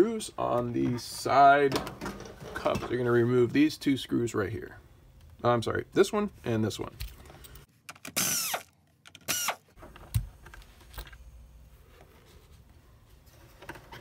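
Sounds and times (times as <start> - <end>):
cordless drill whirring: 8.2 - 8.7, 9.3 - 9.6.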